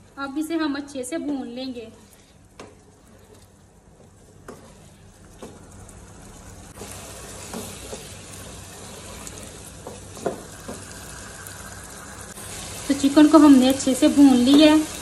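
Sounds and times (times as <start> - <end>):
curry sizzling in a pan: 0.0 - 15.0
wooden spoon stirring and scraping: 1.9 - 6.1, 6.7 - 11.2
spoon knocking on pan: 9.8 - 10.9.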